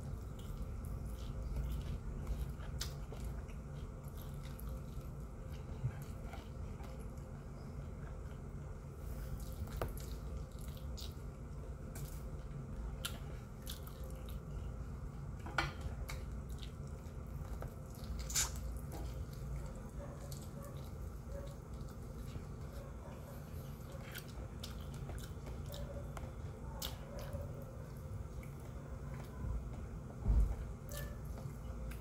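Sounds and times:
low background hum: 0.0s - 32.0s
person chewing food: 0.0s - 32.0s
wet mouth clicks: 18.2s - 18.7s.

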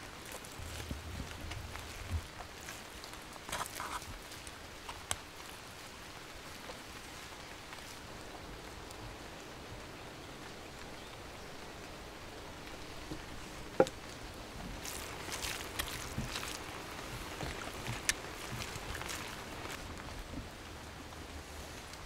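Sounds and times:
soft crackly tearing: 0.0s - 5.6s, 14.1s - 19.9s
steady outdoor hiss: 0.0s - 22.0s
meat being pulled apart: 14.7s - 19.8s.

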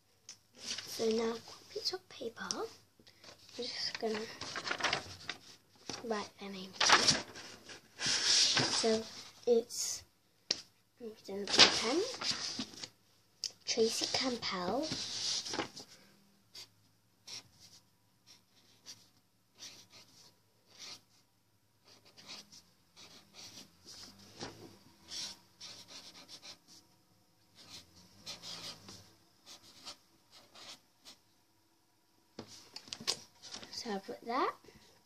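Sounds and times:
pen scratching on paper: 16.5s - 17.7s, 19.6s - 21.2s, 21.8s - 24.0s, 25.0s - 26.8s, 27.6s - 31.2s.

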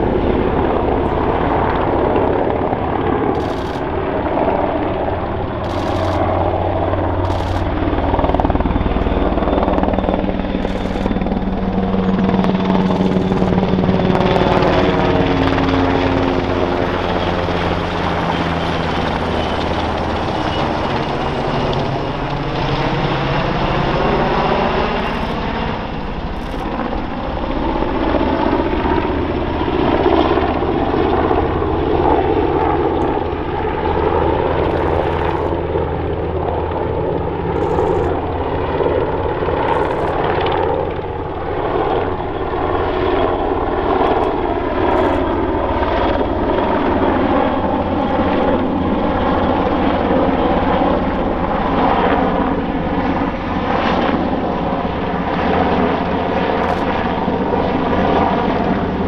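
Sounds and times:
helicopter rotor and turbine: 0.0s - 59.0s.

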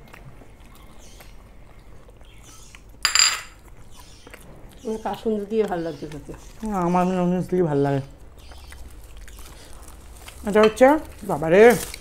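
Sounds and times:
tableware clinking against dish: 3.0s - 3.6s.

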